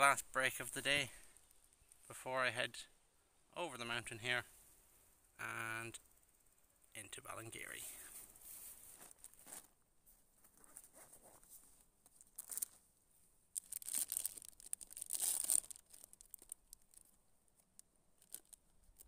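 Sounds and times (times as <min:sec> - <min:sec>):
plastic packet tearing and crinkling: 0:12.3 - 0:12.8, 0:13.6 - 0:17.2, 0:18.2 - 0:19.0.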